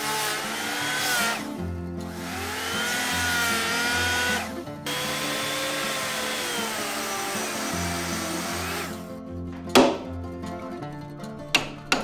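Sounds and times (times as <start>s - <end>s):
circular saw cutting wood: 0.0s - 9.1s
background music: 0.0s - 12.0s
sharp knock: 9.7s - 10.1s.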